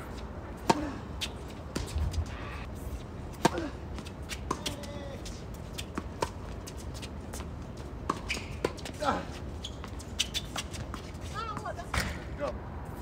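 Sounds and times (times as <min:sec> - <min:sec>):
tennis ball bouncing: 0:00.1 - 0:02.2, 0:03.4 - 0:04.9, 0:05.5 - 0:09.0
tennis racquets striking ball: 0:00.6 - 0:02.0, 0:03.4 - 0:04.8, 0:05.8 - 0:07.1, 0:08.0 - 0:09.0.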